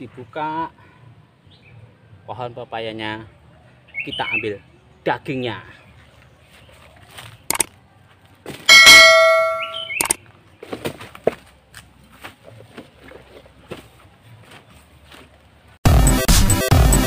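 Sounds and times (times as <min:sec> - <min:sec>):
loud metallic clang: 0:08.7 - 0:10.0.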